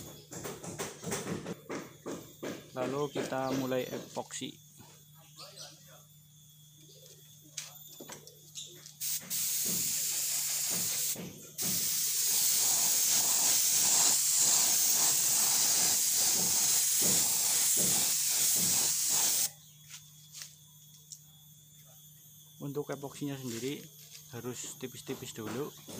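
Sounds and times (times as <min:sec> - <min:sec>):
spray paint hissing: 0:08.9 - 0:19.5.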